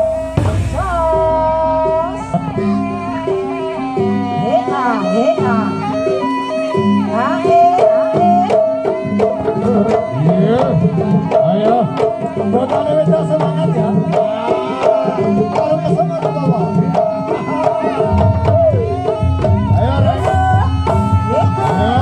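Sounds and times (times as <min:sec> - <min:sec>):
held high tone: 0:00.0 - 0:12.2
hand drums beating fast: 0:00.0 - 0:22.0
wavering melody: 0:00.0 - 0:22.0.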